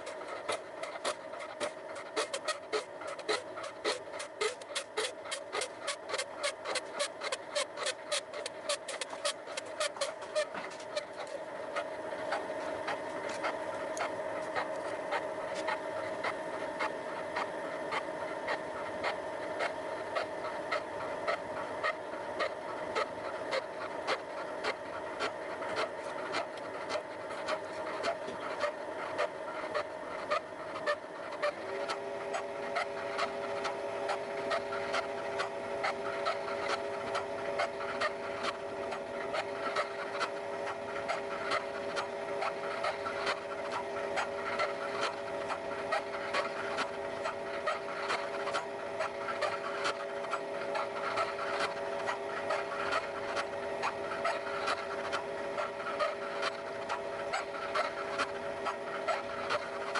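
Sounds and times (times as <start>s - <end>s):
milling machine whine: 0.0s - 59.9s
rhythmic cutting ticks: 0.0s - 59.9s.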